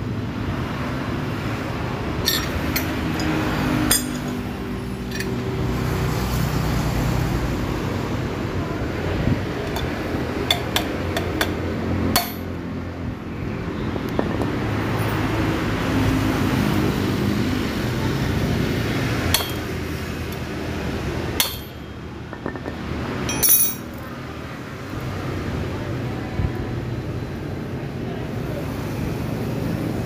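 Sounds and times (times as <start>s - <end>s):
metal tools clinking on metal: 2.2s - 5.4s, 12.2s - 12.5s, 19.3s - 19.7s, 21.4s - 21.8s, 22.4s - 24.0s.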